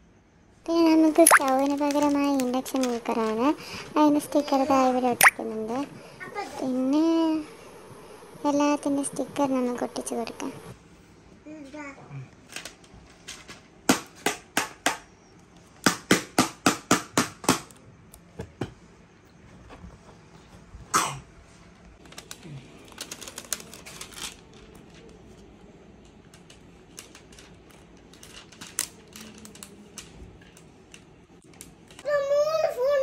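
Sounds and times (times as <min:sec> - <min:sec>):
sticker sheet crinkling: 0:00.8 - 0:05.8, 0:22.0 - 0:25.5, 0:26.4 - 0:32.0.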